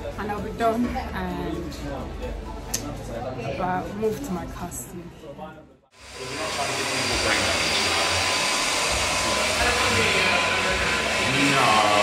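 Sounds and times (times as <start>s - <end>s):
hair dryer blowing: 6.0s - 12.0s.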